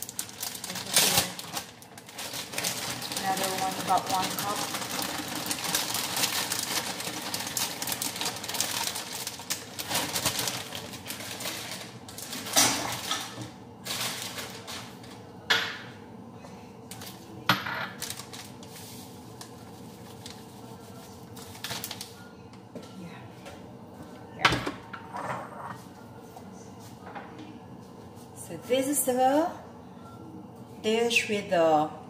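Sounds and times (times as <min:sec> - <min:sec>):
plastic bag crinkling: 0:00.0 - 0:15.2, 0:17.9 - 0:22.2.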